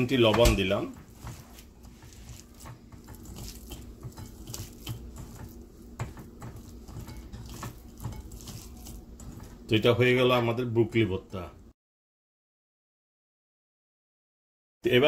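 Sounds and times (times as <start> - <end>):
fingers mashing food on a plate: 0.9 - 9.7.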